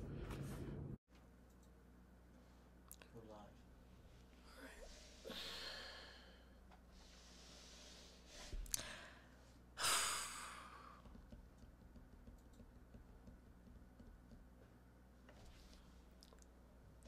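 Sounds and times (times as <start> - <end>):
person sighing: 5.2 - 6.4, 8.6 - 9.2, 9.8 - 11.0.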